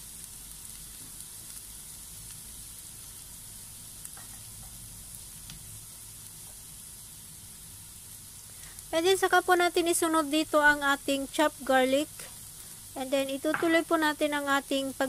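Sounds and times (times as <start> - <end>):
onions sizzling in a pan: 0.0 - 15.0.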